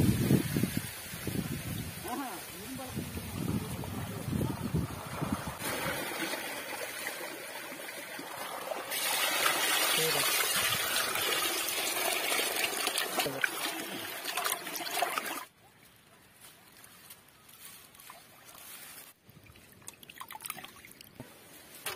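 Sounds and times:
water pouring into steel basin: 4.6s - 15.5s.

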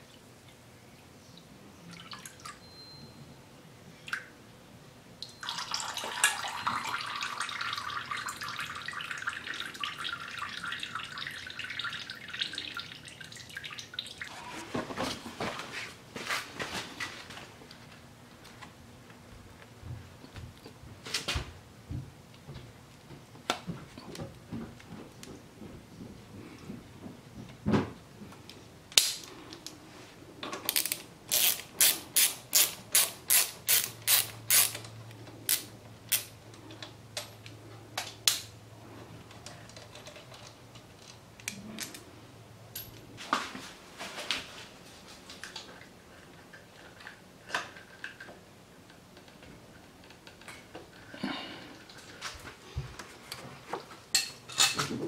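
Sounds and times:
ratchet wrench clicking: 30.7s - 34.8s.

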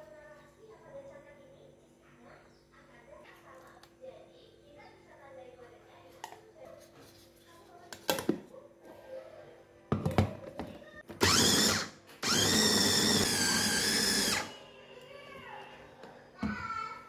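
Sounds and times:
food chopper motor whine: 11.2s - 14.6s.

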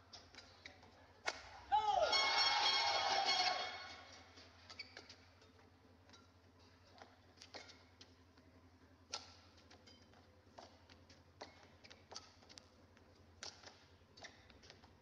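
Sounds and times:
racket striking shuttlecock: 0.1s - 6.3s, 9.1s - 12.8s, 13.4s - 14.9s.

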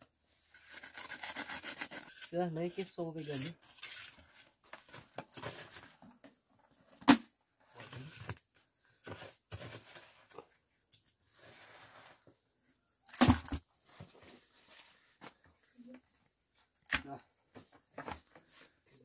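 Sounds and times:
trowel scraping wet mortar: 0.6s - 4.4s.

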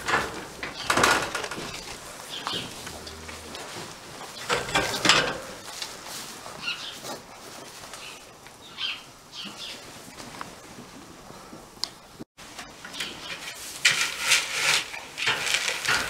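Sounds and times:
rustling in straw: 1.5s - 10.8s, 13.2s - 16.0s.

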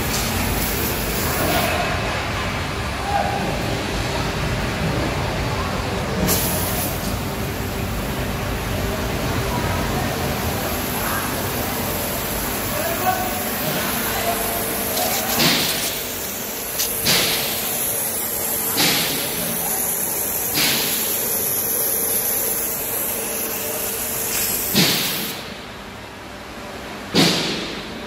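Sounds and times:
waterjet hissing: 10.6s - 25.5s.

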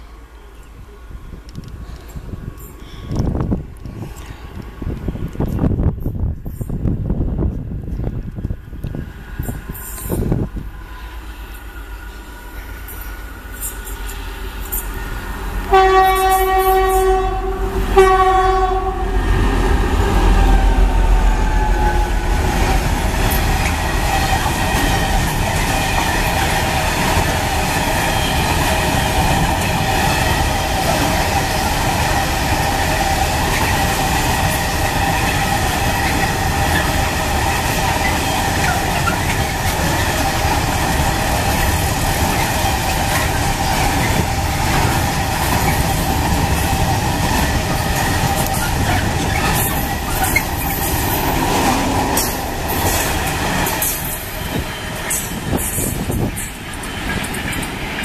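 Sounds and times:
freight train wheels rumbling: 0.0s - 58.0s
locomotive horn: 15.6s - 22.5s.

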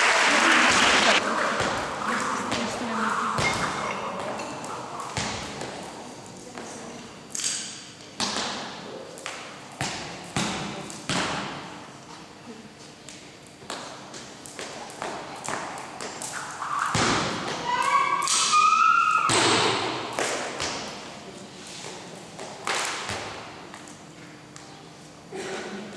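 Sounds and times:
skipping rope slapping gym floor: 0.0s - 6.7s, 7.3s - 11.7s, 13.1s - 21.1s, 21.8s - 24.0s
high squeal: 17.6s - 19.3s.

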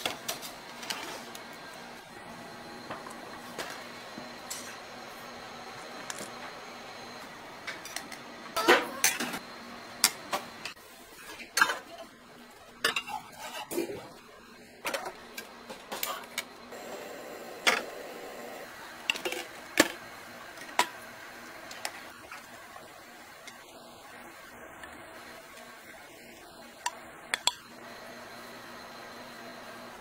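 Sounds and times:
steady background hum: 0.0s - 30.0s
utensils clacking against steel bowls: 12.8s - 14.0s, 26.8s - 27.7s.

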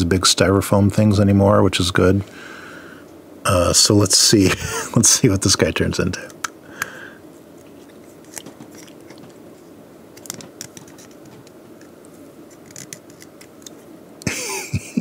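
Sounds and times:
plastic toy clicks and scrapes: 12.5s - 13.8s.

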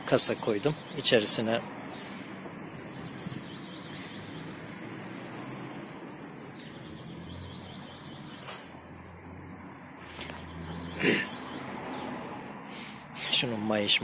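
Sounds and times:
high-pitched whine: 0.6s - 9.4s.

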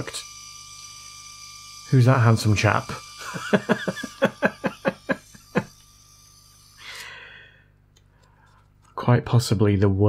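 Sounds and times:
man laughing: 3.2s - 5.8s.

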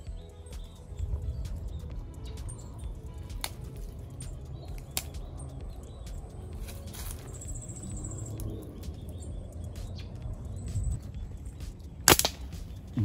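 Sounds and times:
bird chirps: 0.0s - 13.0s
low outdoor rumble: 0.0s - 13.0s
slingshot snap: 3.3s - 5.3s, 12.0s - 12.9s.

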